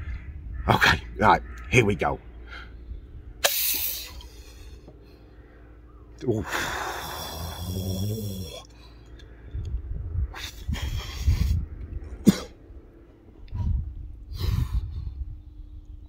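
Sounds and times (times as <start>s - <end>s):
man breathing out hard: 3.8s - 9.6s
man coughing: 12.2s - 12.6s.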